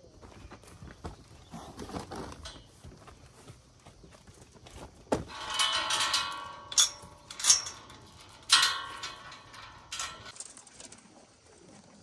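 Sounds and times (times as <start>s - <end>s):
metal fence clanking: 5.3s - 10.4s.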